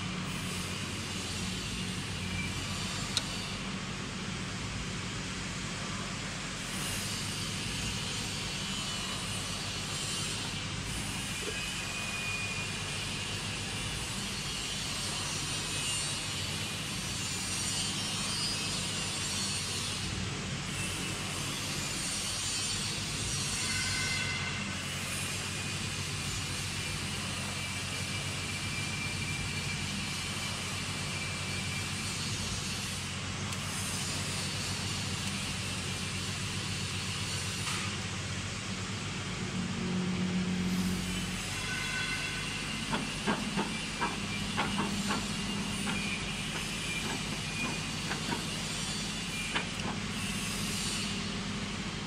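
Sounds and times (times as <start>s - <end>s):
machine hum with hiss: 0.0s - 52.0s.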